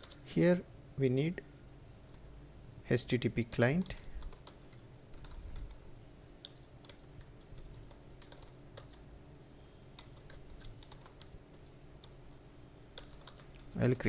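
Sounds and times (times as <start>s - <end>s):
typing on computer keyboard: 0.0s - 0.3s, 3.8s - 5.8s, 6.4s - 9.0s, 10.0s - 12.2s, 12.9s - 14.0s
low steady hum: 0.0s - 14.0s.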